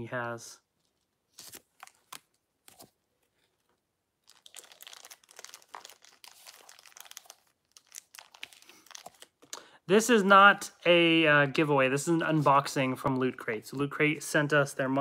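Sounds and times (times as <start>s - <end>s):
plastic wrapper crinkling: 0.8s - 9.7s.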